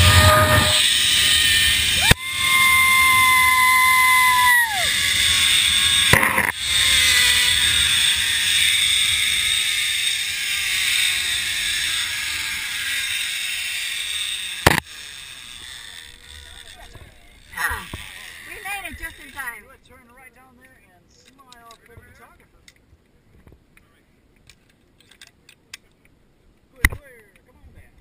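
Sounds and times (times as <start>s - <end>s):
zip line pulleys whining on cable: 0.0s - 19.7s.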